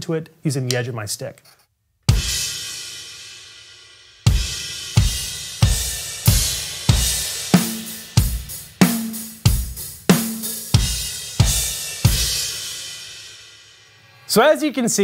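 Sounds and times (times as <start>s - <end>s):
rock drum beat: 2.1s - 13.6s.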